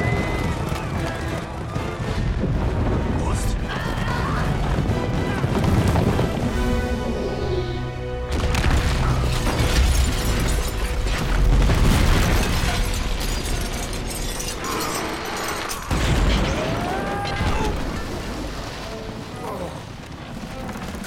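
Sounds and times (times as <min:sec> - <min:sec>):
crashing stone and debris: 0:03.8 - 0:06.6, 0:08.3 - 0:21.0.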